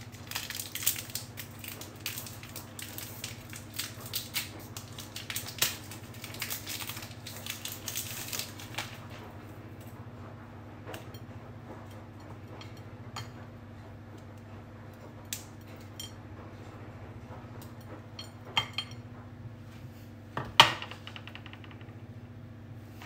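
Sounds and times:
chocolate crumbs clicking on crockery: 0.0 - 9.0.

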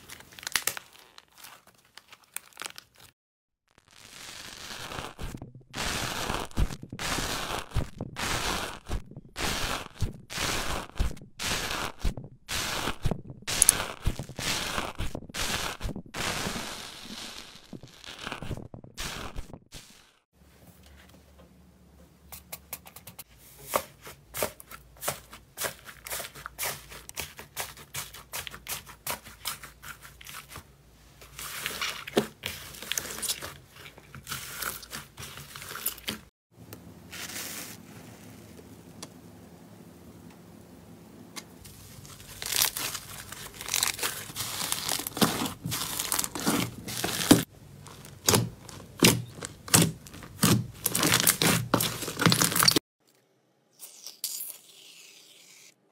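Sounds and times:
slime crackling and popping: 3.8 - 20.2, 42.2 - 52.8.

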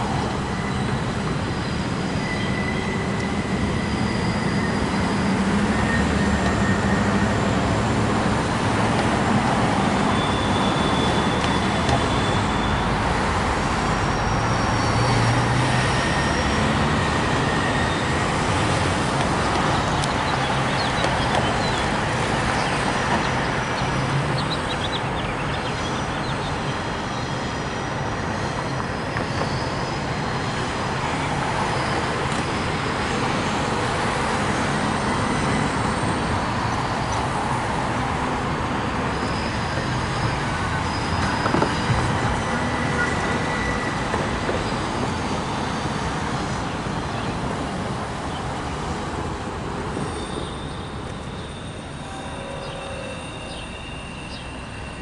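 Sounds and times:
train wheels rumbling on rail: 0.0 - 24.8, 27.6 - 55.0
wheel squeals: 0.0 - 47.7, 49.8 - 55.0.

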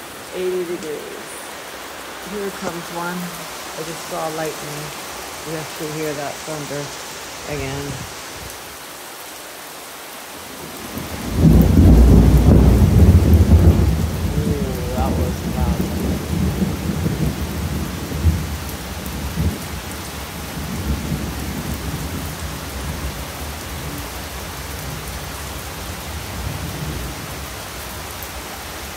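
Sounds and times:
heavy rain pouring: 0.0 - 28.9
thunder crack and rumble: 10.8 - 19.6.

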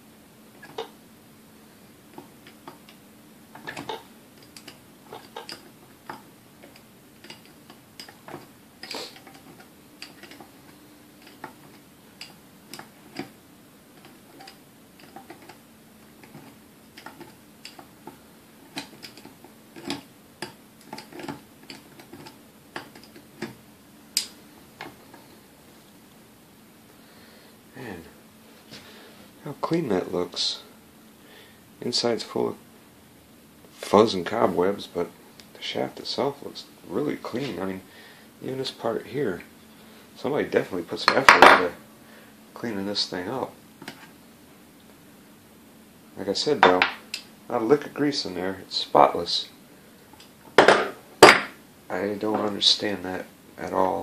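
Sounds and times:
faint steady hum: 0.0 - 54.0
pliers clicking on metal: 3.6 - 10.4.

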